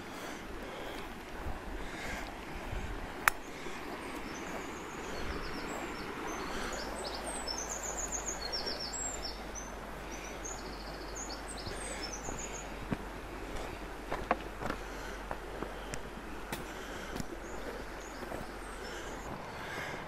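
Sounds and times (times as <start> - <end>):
songbird singing: 0.0 - 20.0
stream rippling over rocks: 0.0 - 20.0.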